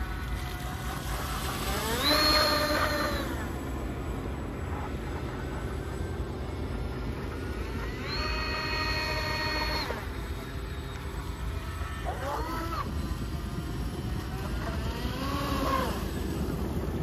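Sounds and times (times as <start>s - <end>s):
electric motor whine: 0.0s - 17.0s.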